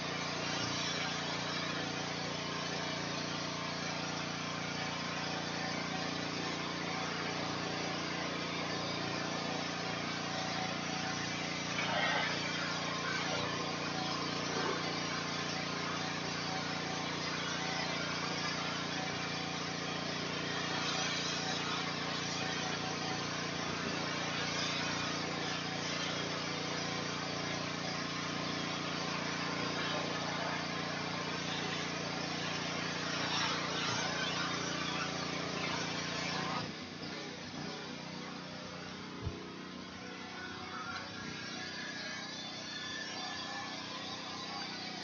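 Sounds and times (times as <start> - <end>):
pressure washer motor droning: 0.0 - 45.0
high-pressure spray hissing: 5.2 - 28.0, 28.6 - 38.0.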